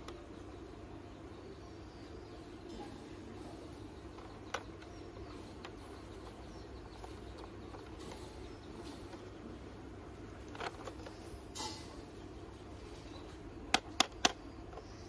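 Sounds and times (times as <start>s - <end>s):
faint steady hum: 0.0s - 15.0s
plastic toy clicks and knocks: 4.1s - 9.3s, 10.4s - 11.7s, 13.7s - 15.0s.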